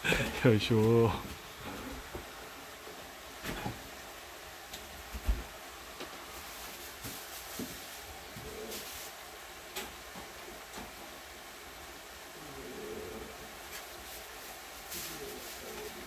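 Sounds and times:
short rustle: 13.7s - 16.0s.

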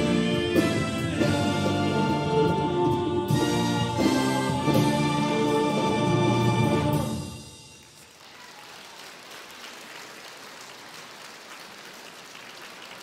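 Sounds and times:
audience applause: 7.8s - 13.0s.

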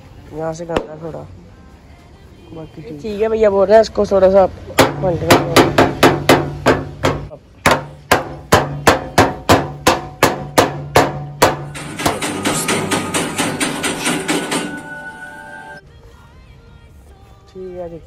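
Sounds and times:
hammer striking metal: 4.8s - 15.8s.

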